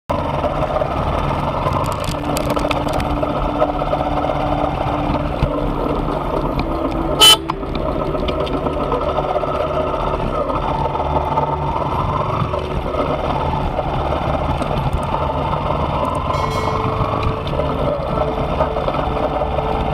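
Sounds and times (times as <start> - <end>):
horn beep: 7.2 - 7.5, 16.3 - 17.8.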